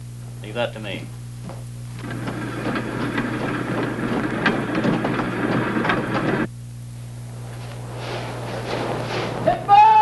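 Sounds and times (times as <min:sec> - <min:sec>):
handcar wheels clattering on rails: 0:02.0 - 0:06.5.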